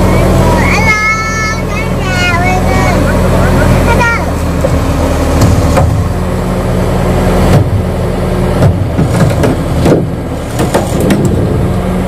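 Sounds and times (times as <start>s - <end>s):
excavator diesel engine running: 0.0s - 12.0s
sharp metal knocks and clanks: 5.4s - 6.1s, 8.6s - 11.5s.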